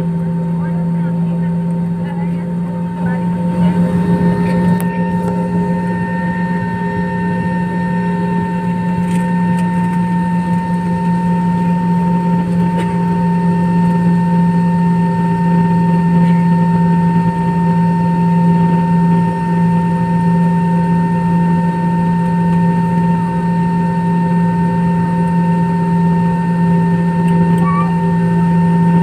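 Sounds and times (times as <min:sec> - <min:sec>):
jet engine high whine: 0:00.0 - 0:29.0
jet engines deep hum: 0:00.0 - 0:29.0.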